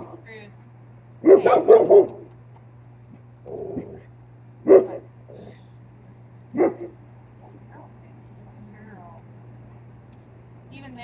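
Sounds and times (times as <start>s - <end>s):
dog barking: 1.2s - 2.3s, 4.6s - 5.5s, 6.5s - 7.0s.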